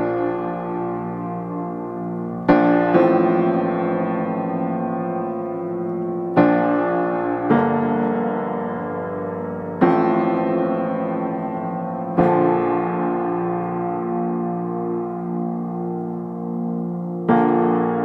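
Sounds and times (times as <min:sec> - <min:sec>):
slow gentle piano music: 0:00.0 - 0:18.0.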